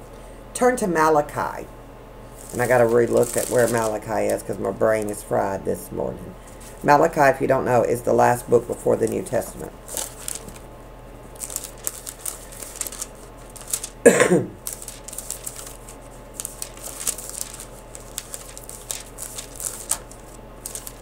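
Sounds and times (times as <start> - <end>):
thin pages rustling: 2.3 - 5.2, 8.7 - 10.7, 11.3 - 14.0, 14.6 - 21.0.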